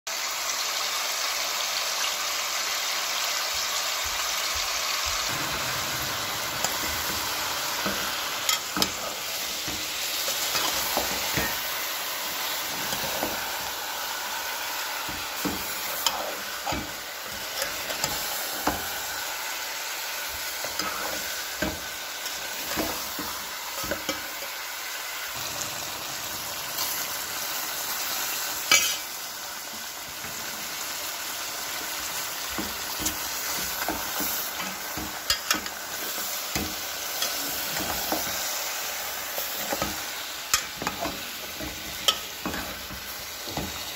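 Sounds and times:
chicken sizzling in hot oil: 0.1s - 43.9s
spoon scraping a metal pot: 5.3s - 13.8s, 15.0s - 18.9s, 20.6s - 24.3s, 28.7s - 29.1s.

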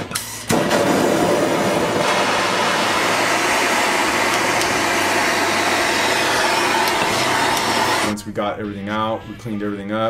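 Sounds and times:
gas torch hissing: 0.1s - 8.2s.

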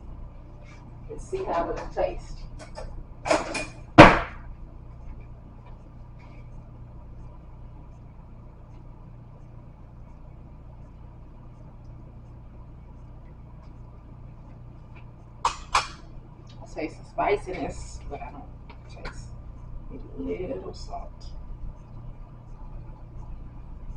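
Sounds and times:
low steady background hum: 0.0s - 23.9s
sharp knock: 4.0s - 4.4s.

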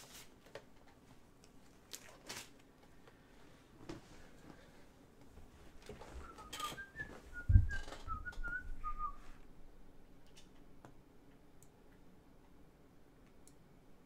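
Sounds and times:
person whistling a tune: 6.2s - 9.3s.

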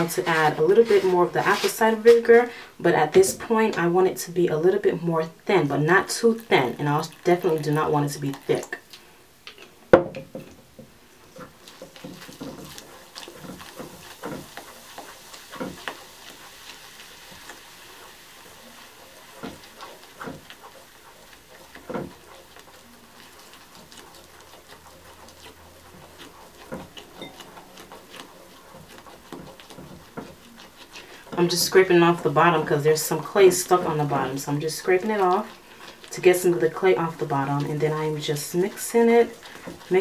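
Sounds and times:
plastic knife scraping glass bowl: 0.0s - 2.4s, 18.6s - 40.0s.

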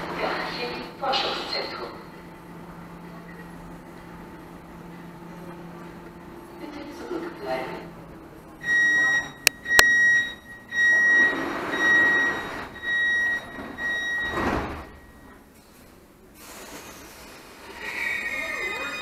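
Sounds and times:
high door-closing warning beeps: 8.6s - 15.4s.

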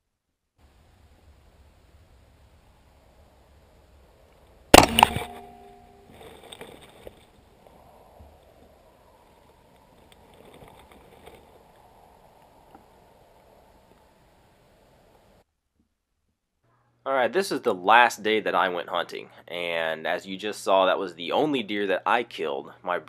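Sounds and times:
suppressed rifle shot: 4.7s - 6.6s
short ringing tone: 4.8s - 6.1s.

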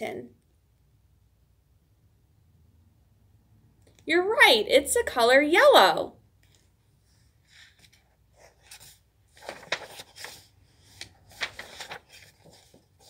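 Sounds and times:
book pages rustling: 6.4s - 13.0s.

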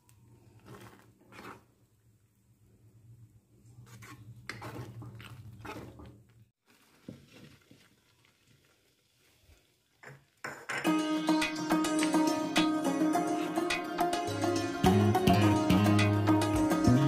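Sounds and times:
spatula scraping and squelching in pan: 0.4s - 1.8s, 3.7s - 6.2s.

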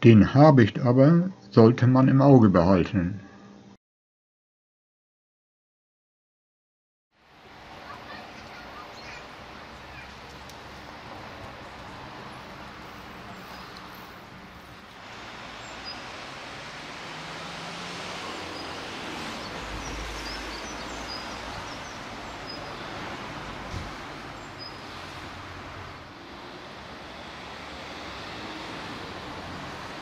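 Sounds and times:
distant city traffic hiss: 7.2s - 30.0s
songbird chirps: 7.8s - 14.7s, 15.4s - 17.4s, 18.2s - 26.2s.

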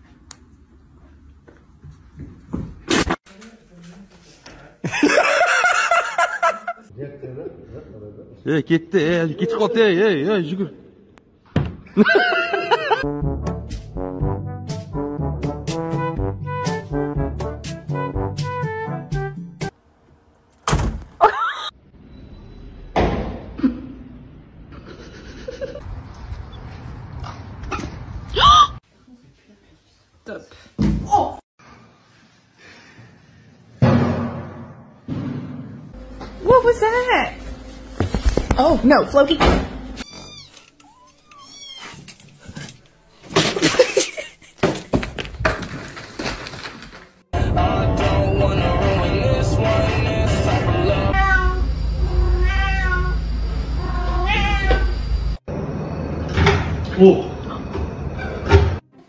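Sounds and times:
cat meowing: 40.1s - 42.0s, 51.1s - 53.2s, 53.8s - 55.0s.

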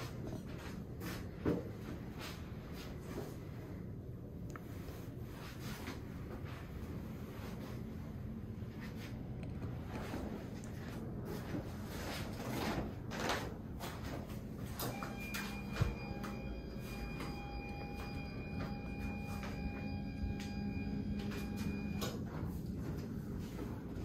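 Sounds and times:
steady whining tone: 14.4s - 24.0s.

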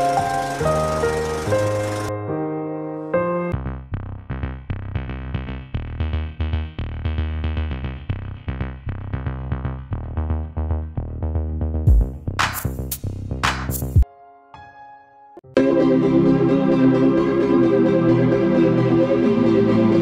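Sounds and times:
electronic synthesizer music: 0.0s - 2.5s, 15.4s - 20.0s.

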